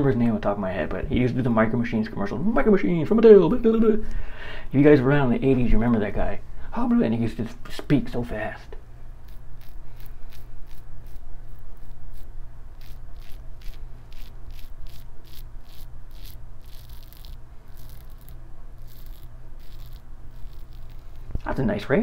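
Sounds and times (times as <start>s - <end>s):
razor scraping through stubble: 9.2s - 21.5s.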